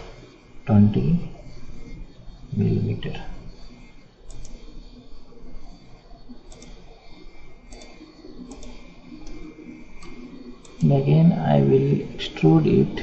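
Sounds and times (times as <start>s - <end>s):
computer mouse clicking: 4.2s - 4.9s, 6.4s - 11.0s.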